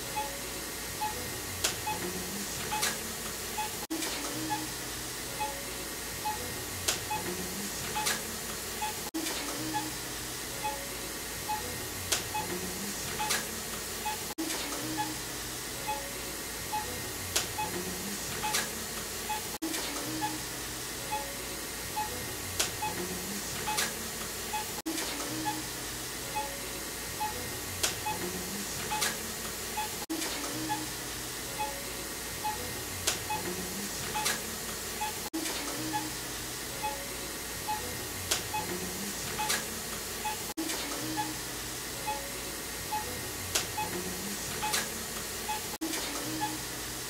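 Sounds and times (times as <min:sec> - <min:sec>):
soft electronic background music: 0:00.0 - 0:14.3.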